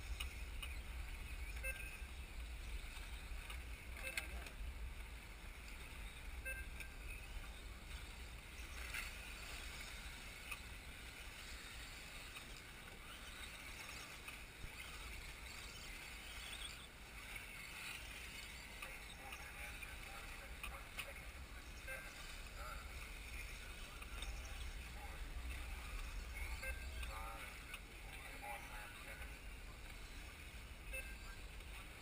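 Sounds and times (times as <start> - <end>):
electric toy cars whirring: 11.2 - 18.8.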